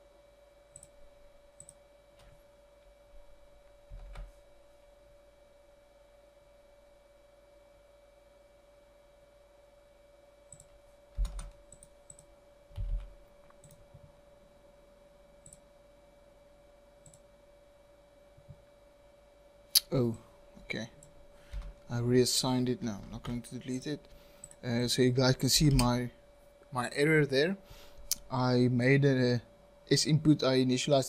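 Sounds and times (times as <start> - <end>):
faint steady hum: 0.0 - 31.0
keyboard and mouse clicks: 10.5 - 13.9.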